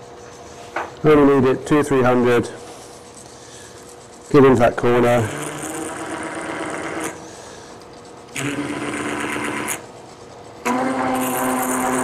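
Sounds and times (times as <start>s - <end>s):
texturing tool buzzing on wood: 3.5s - 7.6s, 8.3s - 12.0s.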